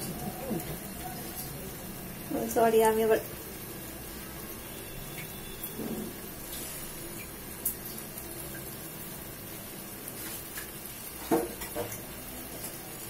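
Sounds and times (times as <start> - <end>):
food hissing in a pan: 5.8 - 7.2.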